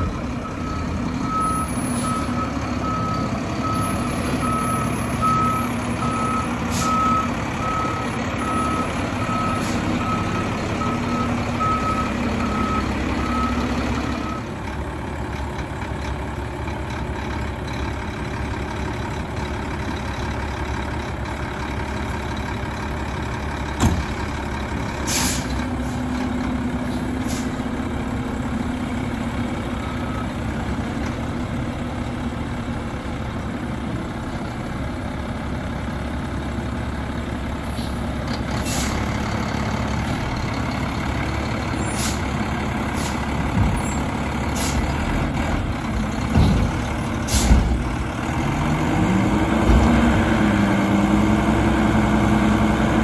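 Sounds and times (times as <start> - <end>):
garbage truck engine running: 0.0 - 53.0
air brake hisses: 25.0 - 26.0, 27.2 - 27.6, 38.6 - 39.0, 41.8 - 42.3, 42.9 - 43.3, 44.5 - 44.8, 47.2 - 47.6.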